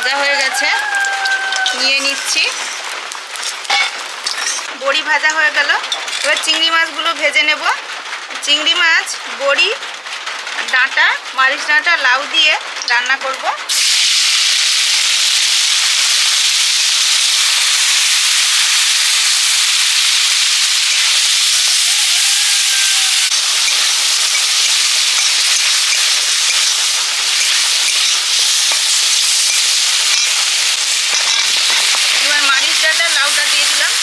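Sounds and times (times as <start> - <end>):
prawns sizzling in hot oil: 0.0 - 34.0
metal spatula stirring in wok: 19.9 - 32.4.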